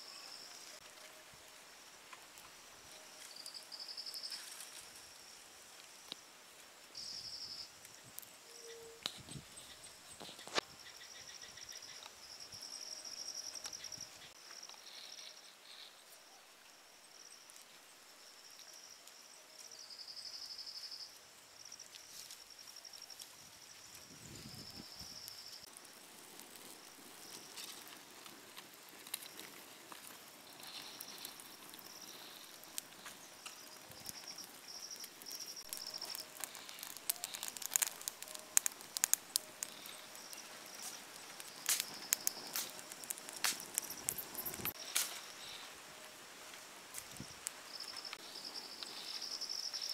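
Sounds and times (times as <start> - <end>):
insects chirping: 1.5 - 49.9
campfire crackling and popping: 21.6 - 45.8, 46.5 - 49.9.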